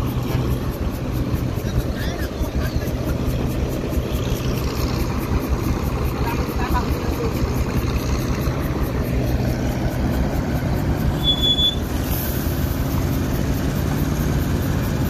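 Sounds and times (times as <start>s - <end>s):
diesel truck engine droning: 0.0s - 15.0s
high-pitched squeal: 8.4s - 14.9s.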